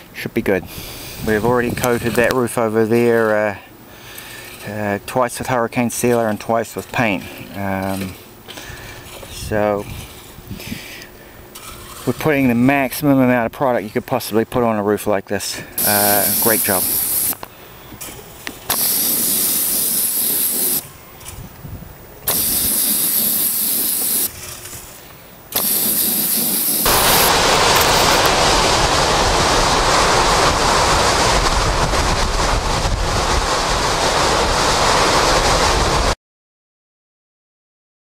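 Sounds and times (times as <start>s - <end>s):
strong wind rushing: 0.8s - 2.3s, 26.9s - 36.2s
spray gun hissing: 15.8s - 17.4s, 18.7s - 20.8s, 22.3s - 24.4s, 25.5s - 29.1s.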